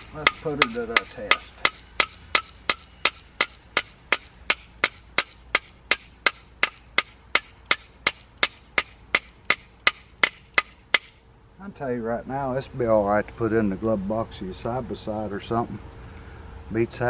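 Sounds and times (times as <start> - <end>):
hammer striking nail in wood: 0.2 - 11.1.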